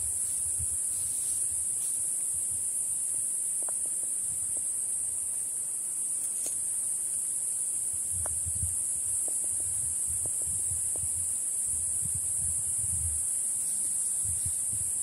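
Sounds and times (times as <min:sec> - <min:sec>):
high-pitched insect chorus: 0:00.0 - 0:15.0
faint ticks: 0:03.5 - 0:04.7.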